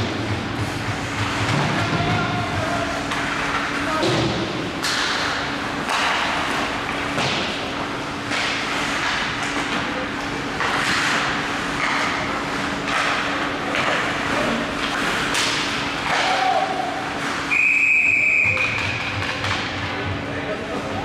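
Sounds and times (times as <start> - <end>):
hockey sticks knocking: 0.0 - 20.5
ice skates scraping: 0.1 - 17.6
referee's whistle: 17.5 - 18.8.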